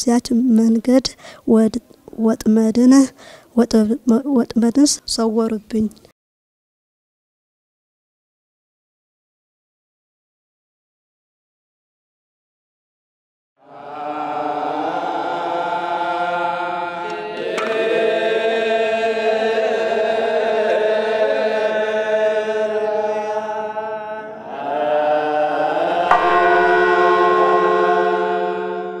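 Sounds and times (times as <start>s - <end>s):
voices chanting long notes: 13.6s - 29.0s
steady low drone: 25.9s - 29.0s
sharp struck accent: 26.0s - 29.0s.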